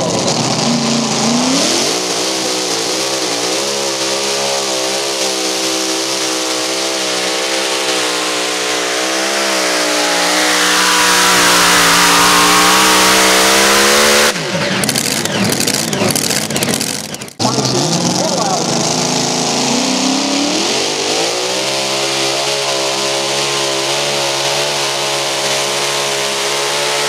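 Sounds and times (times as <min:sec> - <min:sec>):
tractor engine screaming at full throttle: 0:00.0 - 0:27.0
scattered clicks: 0:14.6 - 0:17.4.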